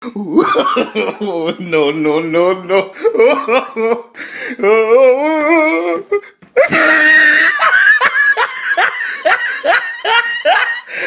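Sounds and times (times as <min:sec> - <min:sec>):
woman laughing: 0:06.6 - 0:11.0.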